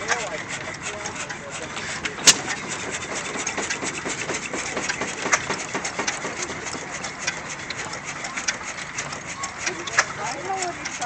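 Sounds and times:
stationary engine running: 0.0 - 11.0
valve gear clicking: 0.0 - 11.0
engine sharp hits: 1.8 - 8.0.

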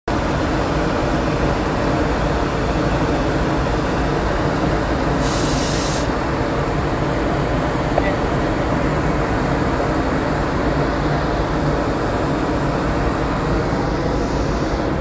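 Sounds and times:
short hiss: 5.2 - 6.1.

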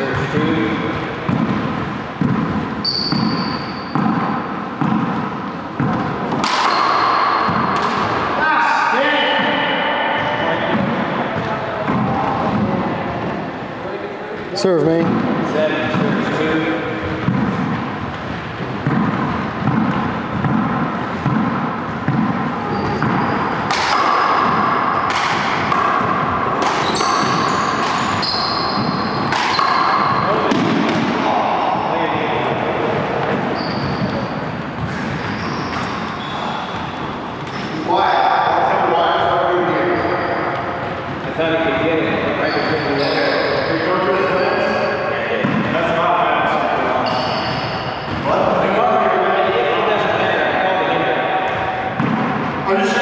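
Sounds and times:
ball hitting walls: 0.0 - 8.4, 15.0 - 31.9, 51.4 - 52.5
racquet hitting ball: 0.0 - 13.4, 15.0 - 41.7, 44.8 - 48.6, 51.3 - 53.0
sneakers squeaking on floor: 0.0 - 13.4, 14.9 - 31.9, 32.5 - 38.0, 39.6 - 41.4, 42.2 - 44.4, 46.9 - 48.5
ball bouncing on wooden floor: 0.9 - 8.2, 17.0 - 31.1
high squeal: 2.8 - 4.5, 22.6 - 23.7, 26.8 - 30.4, 33.5 - 36.9, 39.8 - 40.6, 42.4 - 43.9, 47.0 - 48.4.

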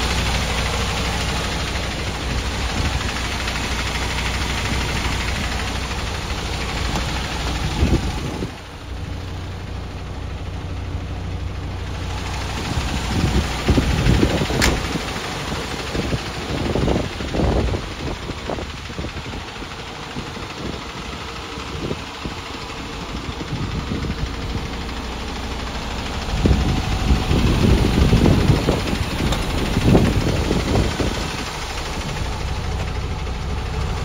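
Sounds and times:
diesel engine idling: 0.0 - 34.0
sharp click: 14.6 - 14.9.

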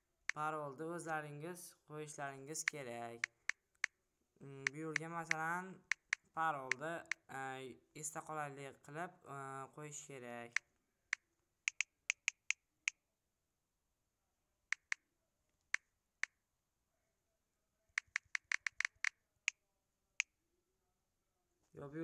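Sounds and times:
phone keyboard clicks: 3.2 - 4.0, 4.7 - 7.3, 10.5 - 12.6, 14.7 - 15.0, 18.0 - 19.2.

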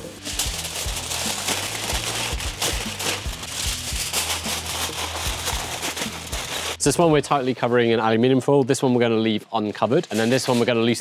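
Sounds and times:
background music with bass line: 0.0 - 7.6
foil crinkling and crackling: 0.1 - 6.9, 9.9 - 11.0.

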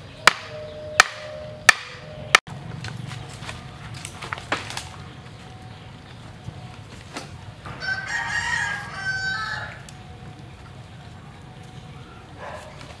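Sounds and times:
rooster crowing: 7.8 - 9.9.

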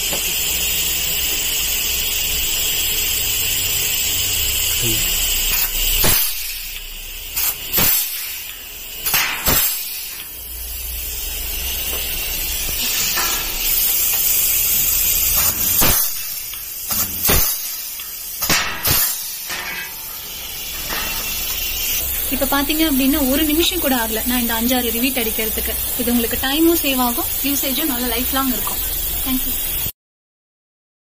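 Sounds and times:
compressed air hiss: 0.0 - 29.9
rivet gun sharp cracks: 5.5 - 10.3, 15.3 - 19.6.

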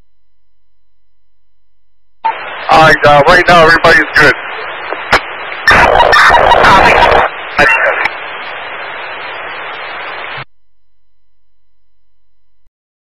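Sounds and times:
garbled radio transmission: 2.2 - 10.4
radio hiss: 2.2 - 10.4.

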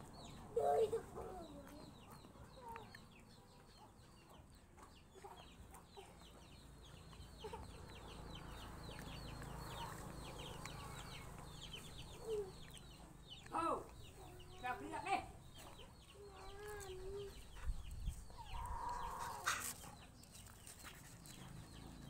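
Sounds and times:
birds chirping: 0.0 - 22.0
chickens clucking: 0.1 - 14.7, 15.5 - 22.0.

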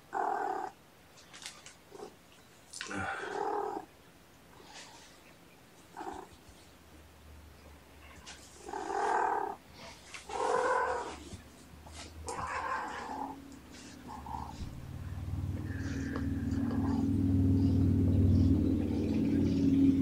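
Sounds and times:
cat meowing in yowls: 12.3 - 13.4.

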